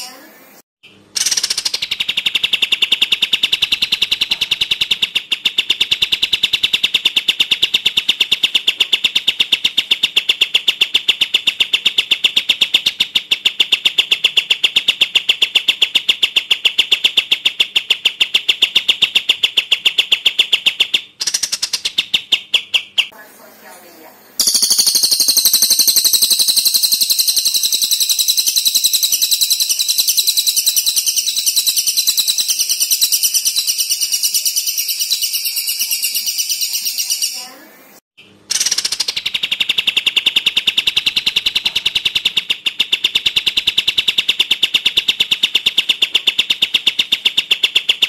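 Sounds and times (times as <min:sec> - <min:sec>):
bird repeating high sharp note: 0:24.4 - 0:37.6.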